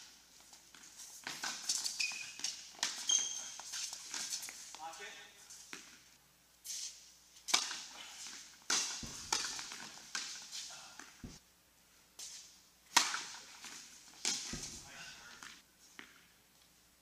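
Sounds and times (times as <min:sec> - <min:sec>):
rackets hitting tennis balls: 0:00.0 - 0:04.9, 0:05.6 - 0:06.1, 0:07.4 - 0:11.4, 0:12.2 - 0:16.4
tennis ball bouncing: 0:08.7 - 0:10.4, 0:11.0 - 0:11.4, 0:12.9 - 0:15.0.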